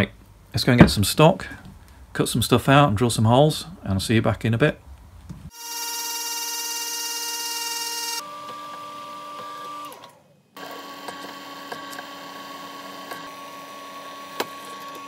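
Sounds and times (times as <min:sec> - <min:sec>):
drill bit cutting metal: 0:05.6 - 0:08.2.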